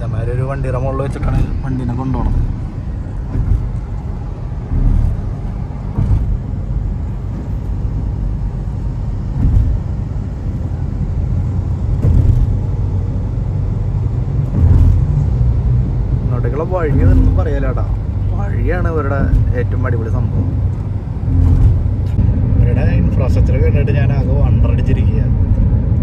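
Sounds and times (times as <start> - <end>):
road and engine rumble: 0.0 - 26.0
brief thumps: 1.2 - 7.7, 9.3 - 10.0, 11.9 - 12.7, 19.1 - 22.2.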